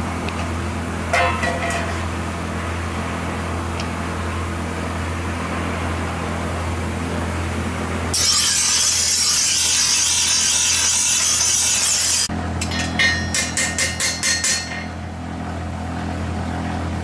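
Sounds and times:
hammer ringing on blade and anvil: 1.1s - 2.0s, 12.6s - 15.0s
blade grinding on bench grinder: 8.1s - 12.3s.

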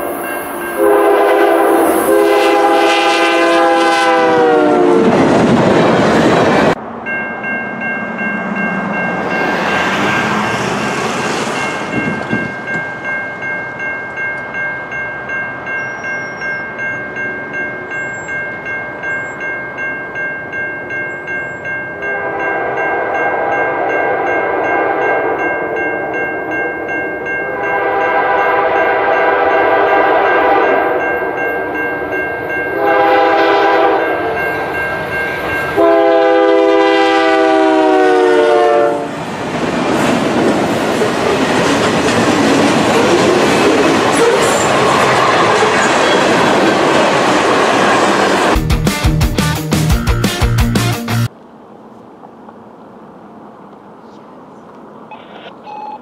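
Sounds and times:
locomotive horn: 0.8s - 5.3s, 27.6s - 31.0s, 32.8s - 34.4s, 35.8s - 39.1s
level crossing bell ringing: 11.6s - 28.2s, 28.8s - 32.9s, 33.8s - 35.9s.

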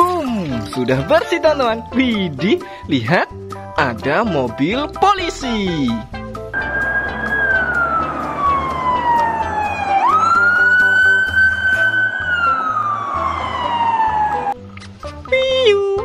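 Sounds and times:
background music: 0.0s - 16.0s
police siren wailing: 6.6s - 14.6s.

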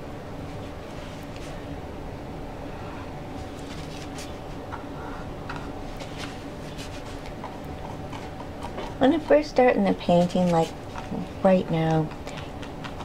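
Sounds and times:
low room hum: 0.0s - 13.0s
paintbrush scratching on canvas: 6.0s - 11.3s.

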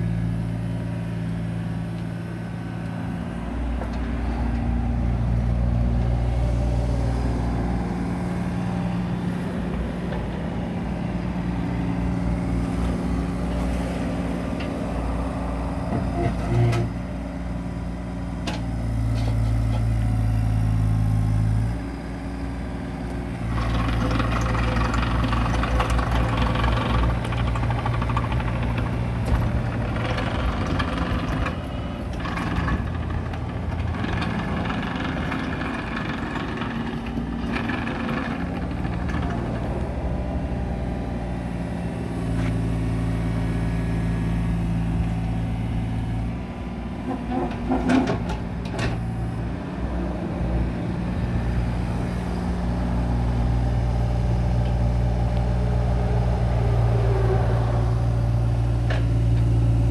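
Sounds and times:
mini excavator diesel engine: 0.0s - 59.9s
hydraulic noise: 23.3s - 39.9s.

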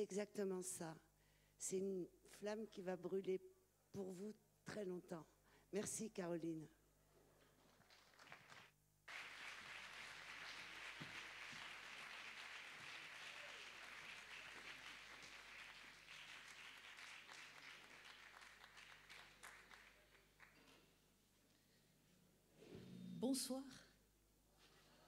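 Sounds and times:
audience applauding: 7.8s - 20.8s.

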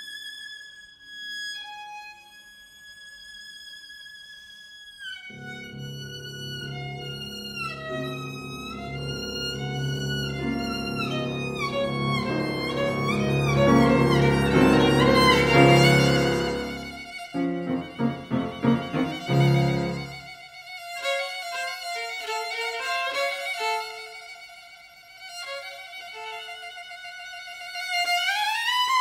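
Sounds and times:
violin melody: 1.1s - 2.9s, 4.9s - 29.0s
piano accompaniment: 5.3s - 20.3s.

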